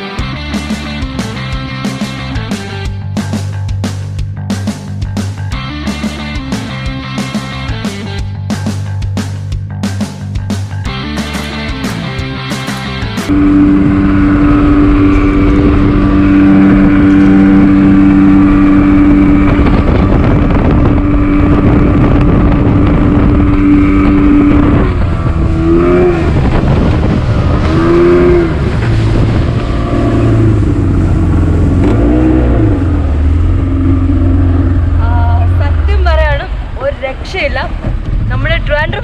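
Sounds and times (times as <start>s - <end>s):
speedboat engine running: 0.0s - 39.0s
wind and water rushing: 13.3s - 39.0s.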